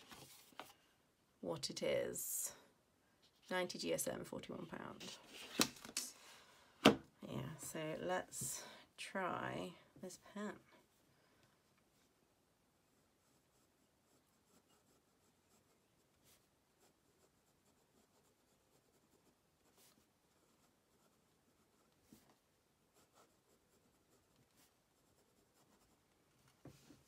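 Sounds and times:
fountain pen scratching on paper: 0:13.0 - 0:22.3, 0:22.9 - 0:26.0.

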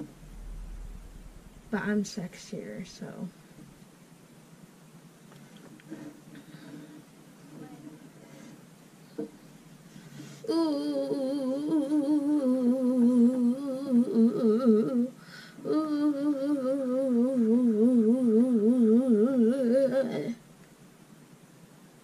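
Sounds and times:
boy humming: 0:10.4 - 0:20.4.

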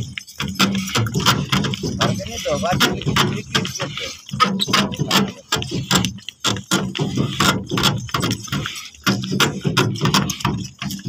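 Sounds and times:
metallic jingling: 0:00.0 - 0:06.7
cart clattering and rattling: 0:00.0 - 0:11.0.

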